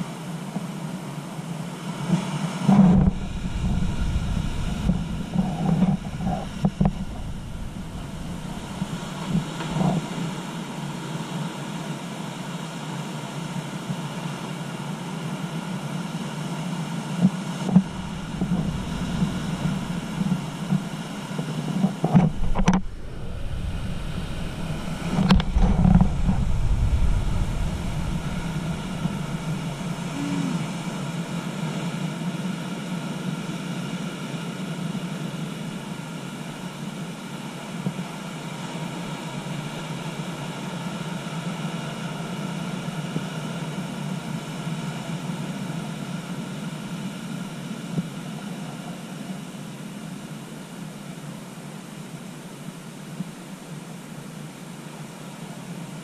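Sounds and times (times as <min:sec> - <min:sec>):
wind rumble on microphone: 0:02.1 - 0:10.7, 0:17.2 - 0:31.4
ocean surf on rocks: 0:02.7 - 0:11.0, 0:17.6 - 0:31.7.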